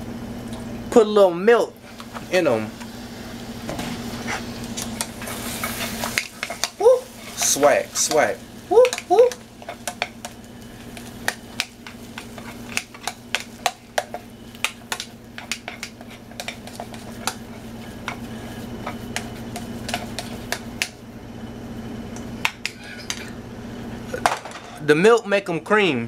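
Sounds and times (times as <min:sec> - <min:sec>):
steady low hum: 0:00.0 - 0:26.0
metal spoon stirring in a pot: 0:04.2 - 0:20.9.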